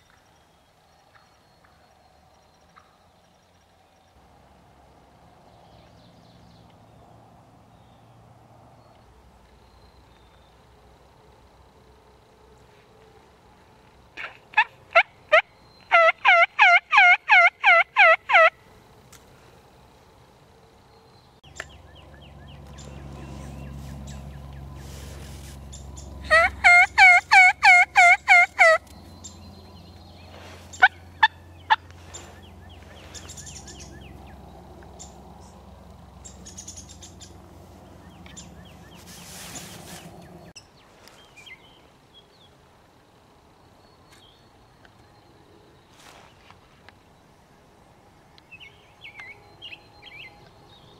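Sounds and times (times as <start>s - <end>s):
turkey yelping: 14.6s - 18.5s, 26.2s - 28.9s, 30.8s - 31.8s.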